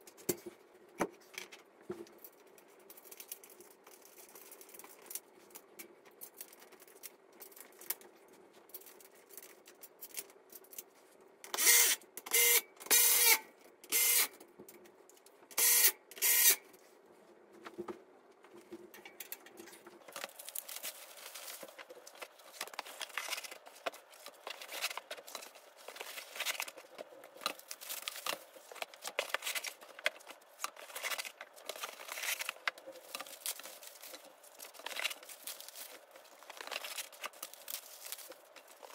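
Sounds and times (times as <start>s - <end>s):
electric screwdriver whirring: 11.6s - 14.3s, 15.6s - 16.6s
plastic wrap rustling: 19.6s - 38.9s.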